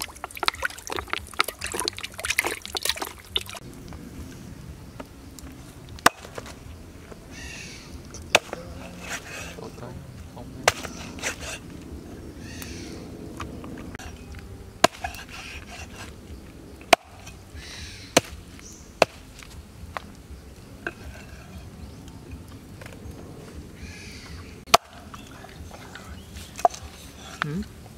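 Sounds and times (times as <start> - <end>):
cleaver chopping on wooden board: 6.0 - 6.6, 8.3 - 9.5, 10.6 - 11.6, 14.8 - 16.1, 16.9 - 20.1, 24.7 - 25.2
blade scraping on board: 8.3 - 9.7, 10.6 - 11.7, 14.8 - 16.2.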